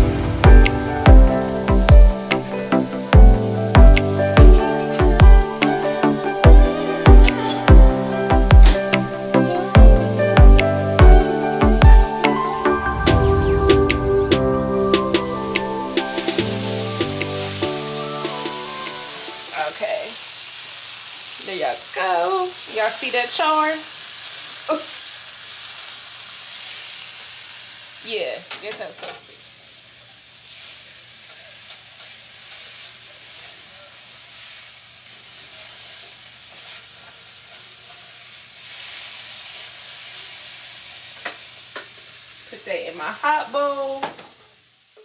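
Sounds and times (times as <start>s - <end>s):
food sizzling in a pan: 0.0s - 13.5s, 14.1s - 45.0s.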